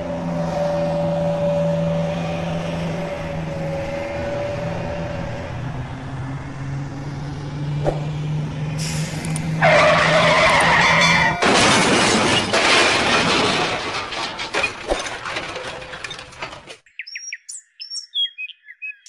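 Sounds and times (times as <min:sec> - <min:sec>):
engine hum: 0:00.0 - 0:16.8
tire skid screech: 0:07.8 - 0:12.8
loud crash: 0:11.3 - 0:16.0.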